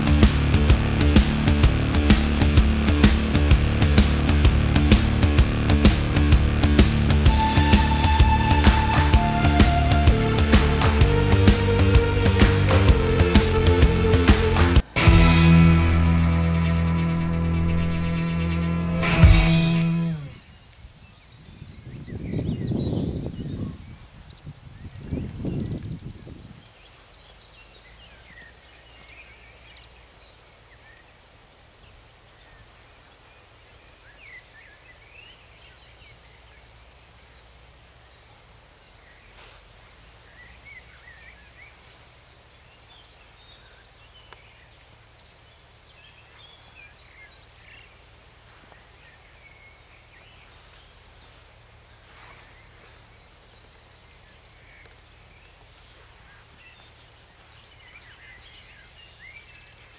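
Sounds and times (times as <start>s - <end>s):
birds chirping and singing: 19.1s - 31.0s, 39.1s - 59.9s.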